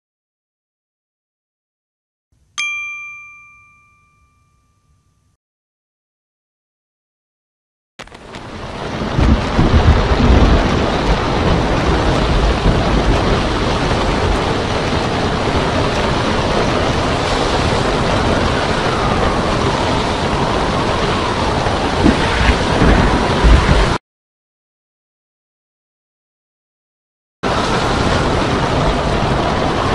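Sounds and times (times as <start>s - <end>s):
breaking surf: 8.0s - 24.0s, 27.4s - 29.9s
strong wind: 8.0s - 24.0s, 27.4s - 29.9s
heavy low rumbling: 9.1s - 24.0s.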